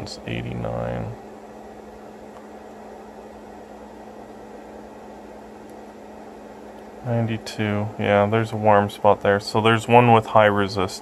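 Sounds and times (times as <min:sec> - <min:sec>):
fan whirring: 0:00.0 - 0:11.0
low electrical hum: 0:00.0 - 0:11.0.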